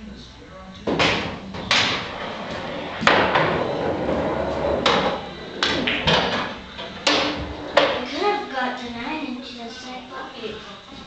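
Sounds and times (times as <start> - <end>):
pool balls clacking: 0.8 - 8.2
cue striking ball: 0.9 - 3.8, 4.7 - 8.0.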